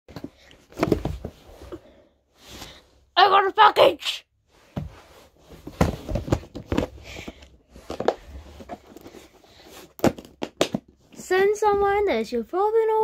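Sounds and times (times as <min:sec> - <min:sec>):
package knocks and rustles: 0:00.2 - 0:01.3, 0:05.6 - 0:09.1, 0:10.0 - 0:10.9.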